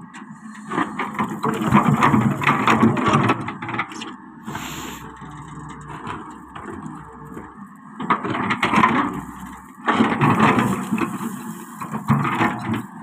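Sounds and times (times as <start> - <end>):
excavator running: 0.0 - 13.0
steel bucket scraping stone: 0.8 - 6.0, 8.8 - 13.0.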